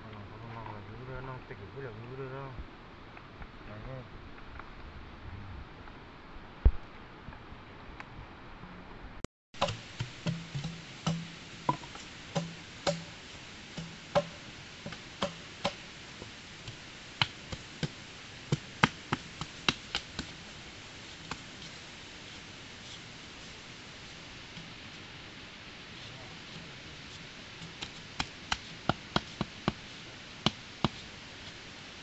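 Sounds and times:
sharp knocks: 0:09.6 - 0:13.2, 0:13.8 - 0:15.8.

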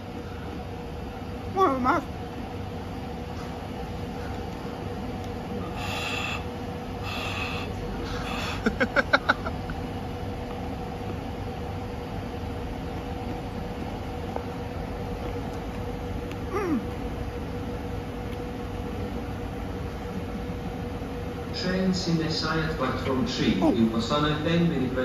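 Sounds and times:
railway station hum: 0:00.0 - 0:25.0
man groaning: 0:16.5 - 0:16.8, 0:23.6 - 0:24.0
man crying out: 0:23.6 - 0:24.0.

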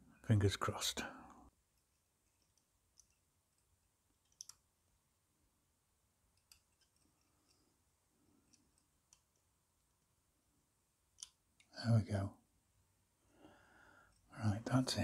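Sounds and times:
pliers clicking on wire: 0:04.2 - 0:04.6.

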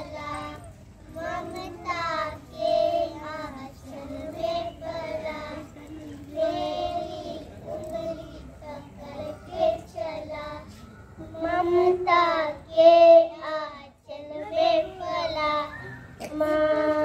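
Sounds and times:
children singing into microphone: 0:00.0 - 0:17.0.

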